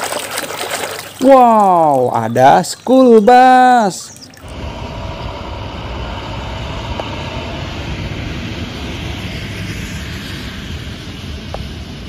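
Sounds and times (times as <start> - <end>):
bus driving by: 4.4 - 12.0
road noise rumble: 4.4 - 12.0.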